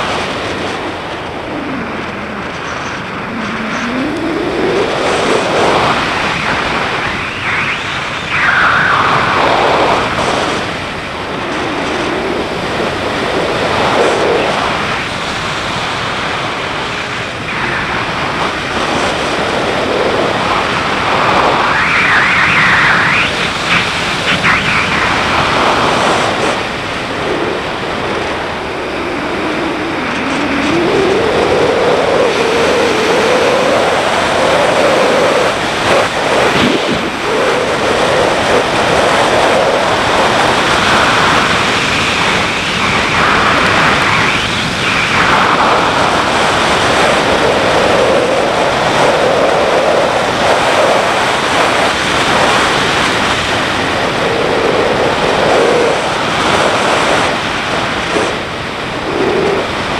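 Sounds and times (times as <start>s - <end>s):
wind rush on microphone: 0.0s - 59.9s.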